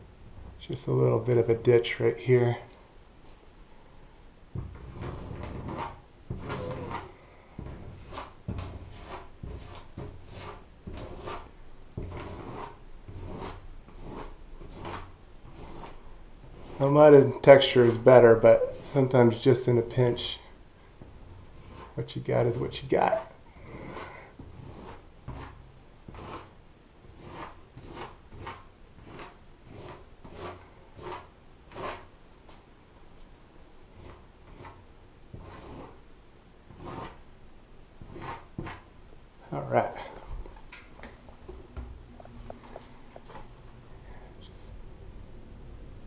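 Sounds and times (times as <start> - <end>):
tube scraping over textured wall: 4.6 - 17.0, 22.6 - 32.1, 33.9 - 36.0, 36.7 - 37.2, 38.0 - 38.8.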